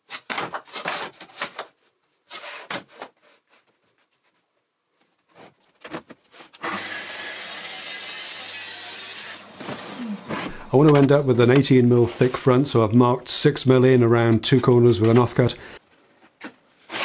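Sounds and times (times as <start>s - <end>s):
track saw cutting plywood: 6.6s - 10.5s.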